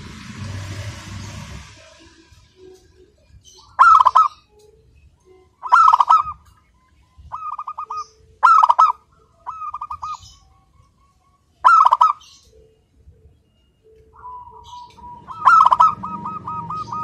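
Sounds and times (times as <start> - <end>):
dove cooing: 3.6 - 4.4, 5.6 - 6.5, 7.3 - 10.4, 11.6 - 12.4, 14.1 - 17.0.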